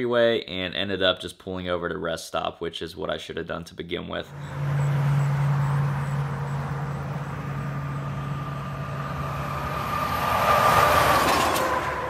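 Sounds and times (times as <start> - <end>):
steady vehicle drone: 4.2 - 12.0
vehicle passing close by: 4.2 - 12.0.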